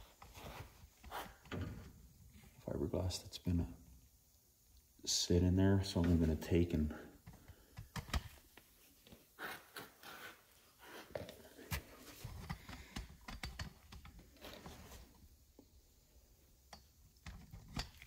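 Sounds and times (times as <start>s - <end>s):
rustling of materials: 8.0s - 15.2s
faint clicks and taps of tools: 11.1s - 14.3s.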